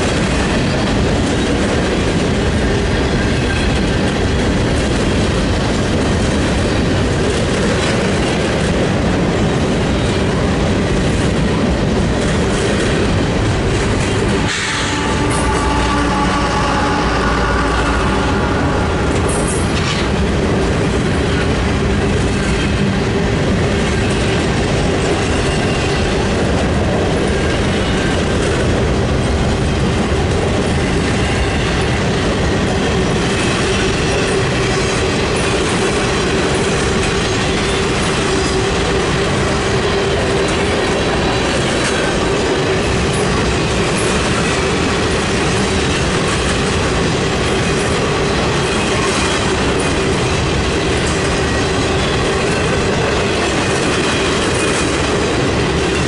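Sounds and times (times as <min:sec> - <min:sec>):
steel wheels on rail: 0:00.0 - 0:56.0
steady tone: 0:14.4 - 0:20.9.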